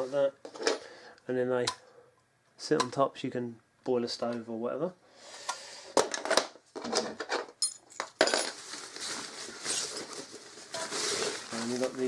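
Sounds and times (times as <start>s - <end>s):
metal parts clinking: 7.2s - 8.6s
fabric sack rustling: 8.5s - 12.0s.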